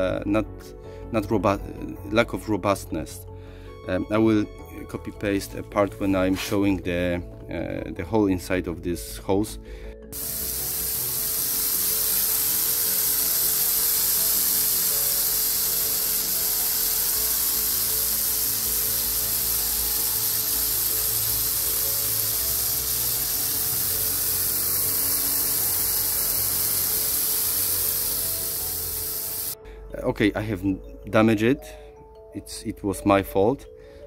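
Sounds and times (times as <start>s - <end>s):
faint background music: 0.0s - 34.0s
hose jet hissing: 10.1s - 29.6s.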